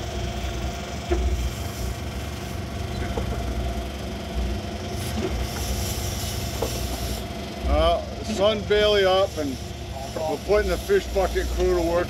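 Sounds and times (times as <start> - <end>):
boat engines rumbling: 0.0 - 12.0.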